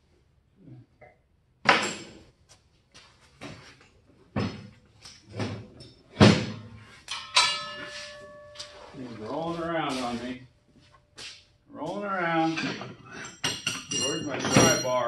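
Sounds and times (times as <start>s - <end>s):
metal frame clanking and thumping: 4.3s - 8.8s, 12.4s - 15.0s.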